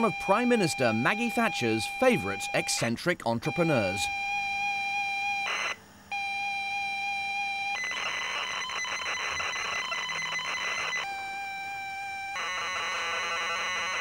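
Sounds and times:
rasping data stream: 0.0 - 4.6, 7.8 - 14.0
high-pitched pilot tone: 0.0 - 14.0.

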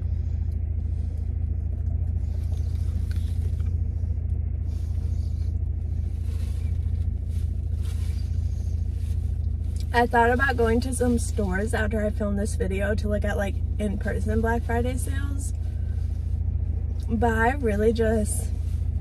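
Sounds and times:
car engine idling: 0.0 - 19.0
faint chewing: 0.4 - 9.9.

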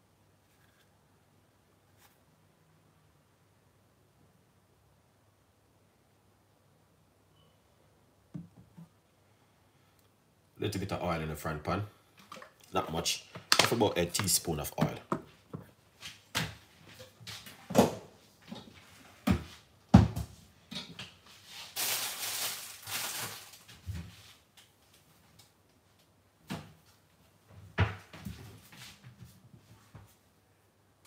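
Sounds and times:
kitchen knocks and clunks: 8.3 - 8.9, 19.2 - 21.0.

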